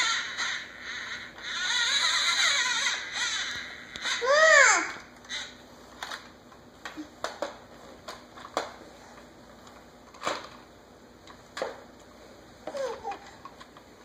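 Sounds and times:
baby squealing: 0.0s - 5.6s.

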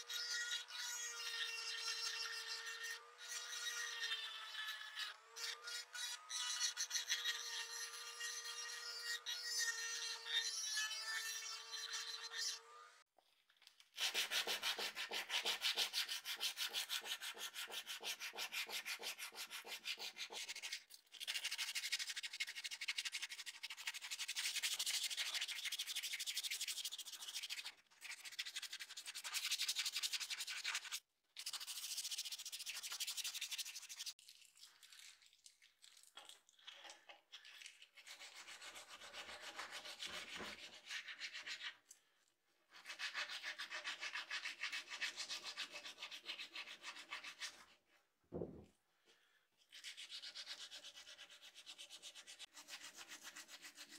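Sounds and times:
sandpaper rubbing on steel: 14.0s - 34.1s.

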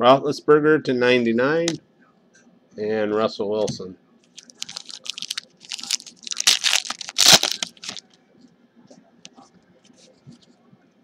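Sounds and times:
foil pack tearing and crinkling: 4.4s - 8.0s.

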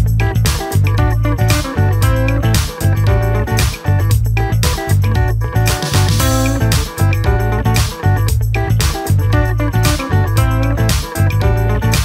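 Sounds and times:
plucked guitar: 0.0s - 12.0s
steady bass beat: 0.0s - 12.0s
upbeat background music: 0.0s - 12.0s.

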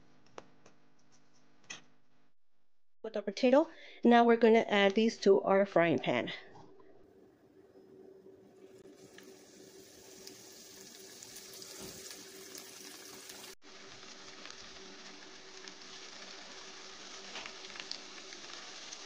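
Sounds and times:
oil sizzling and crackling: 8.6s - 19.0s.

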